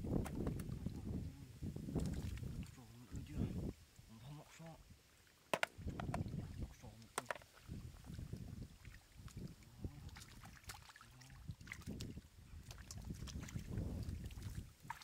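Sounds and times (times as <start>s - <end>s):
small sharp splashes: 1.9s - 2.8s, 5.2s - 15.0s
muddy water sloshing: 1.9s - 3.2s, 4.4s - 15.0s.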